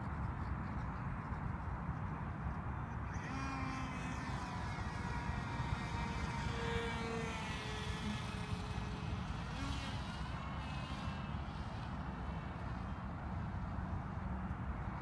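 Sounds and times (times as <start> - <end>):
wind rumble on microphone: 0.0 - 15.0
model plane motor whining: 3.0 - 14.5.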